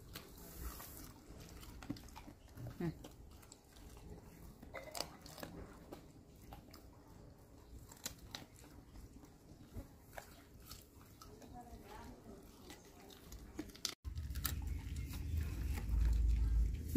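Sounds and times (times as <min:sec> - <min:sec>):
dog chewing with crunches: 0:00.0 - 0:16.9.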